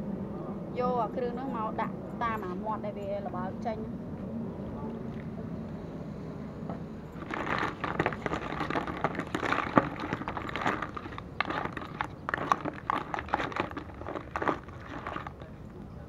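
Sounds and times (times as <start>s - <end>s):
snail shells clattering: 7.2s - 15.5s.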